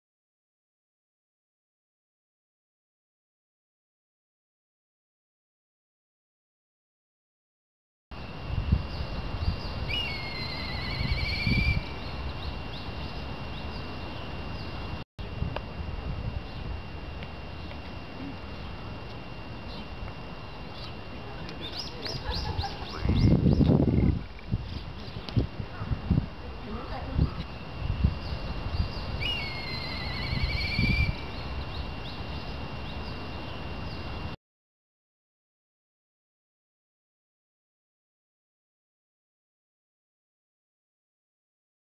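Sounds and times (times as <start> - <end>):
steady low rumble: 8.2 - 34.4
bird of prey whistling call: 9.5 - 12.5, 28.2 - 33.0.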